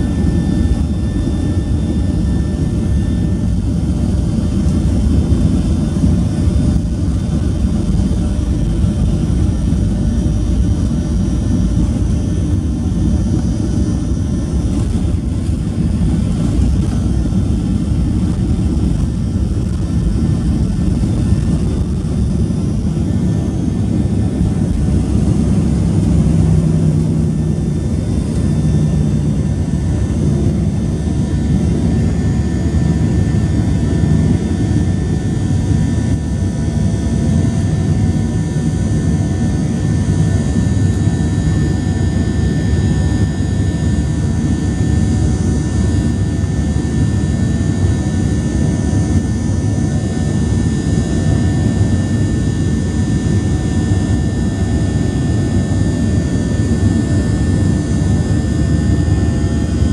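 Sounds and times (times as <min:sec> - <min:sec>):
jet engines rumbling: 0:00.0 - 0:59.9.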